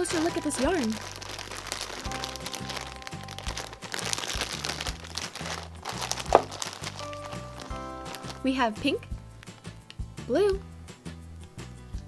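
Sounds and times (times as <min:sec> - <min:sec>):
plastic bag crinkling: 0:00.0 - 0:08.7
background music with bass line: 0:00.0 - 0:12.0.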